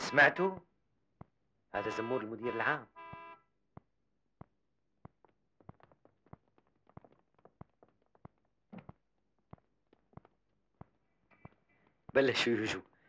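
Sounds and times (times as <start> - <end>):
footsteps on hard floor: 3.1 - 12.3.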